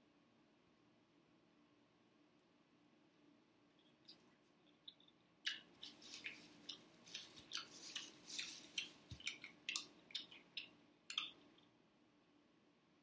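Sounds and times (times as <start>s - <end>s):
person chewing: 3.8s - 11.6s.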